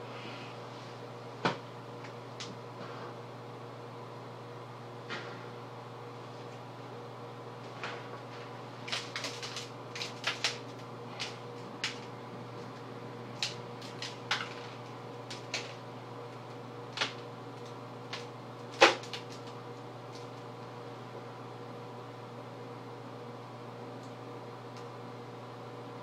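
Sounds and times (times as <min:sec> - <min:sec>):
room hum: 0:00.0 - 0:26.0
foil pie tin crinkling: 0:08.8 - 0:20.4.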